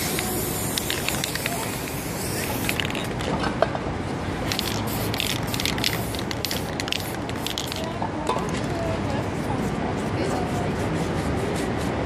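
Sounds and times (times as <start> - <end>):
spray-paint can hissing: 0.0 - 3.1, 4.5 - 7.9
city street noise: 0.0 - 12.0.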